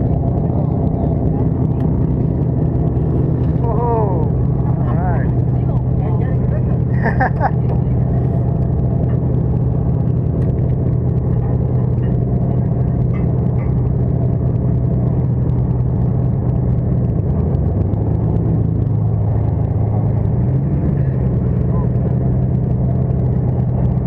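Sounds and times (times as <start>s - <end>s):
boat engine droning: 0.0s - 24.0s.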